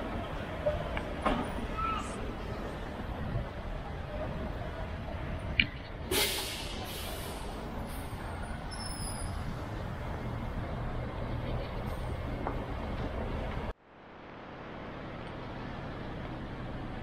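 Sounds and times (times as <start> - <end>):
traffic rumble: 0.0 - 17.0
air brakes hissing: 6.1 - 9.6.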